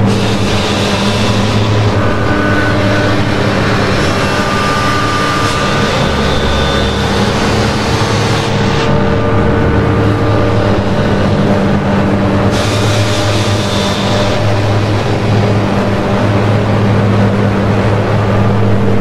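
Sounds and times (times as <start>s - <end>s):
hiss: 0.0s - 2.2s, 12.4s - 15.6s
low droning hum: 0.0s - 19.0s.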